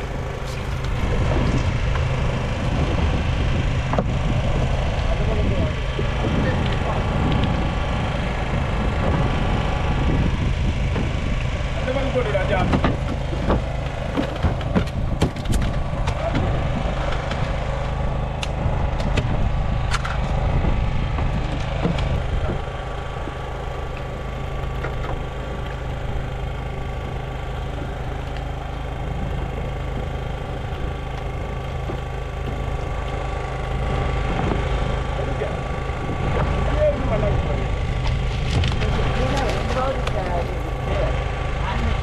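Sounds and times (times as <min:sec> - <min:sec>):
engine running at low revs: 0:00.0 - 0:42.0
faint steady whine: 0:00.0 - 0:42.0
sharp knocks and clicks: 0:12.6 - 0:17.6, 0:18.4 - 0:24.1.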